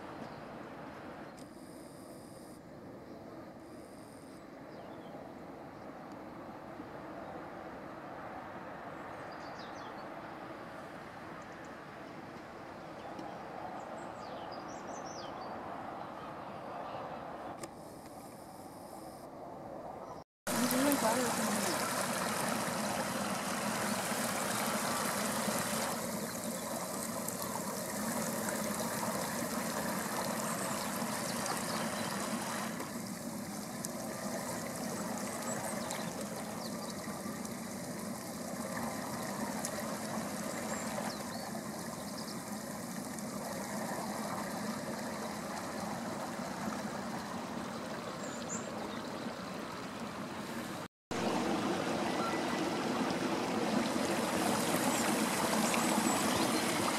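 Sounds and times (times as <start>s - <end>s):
water running along a channel: 20.5s - 56.9s.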